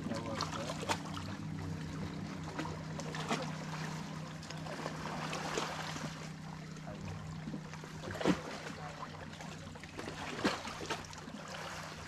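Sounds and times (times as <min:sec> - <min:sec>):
small waves lapping against rocks: 0:00.0 - 0:12.0
steady low hum: 0:00.0 - 0:12.0.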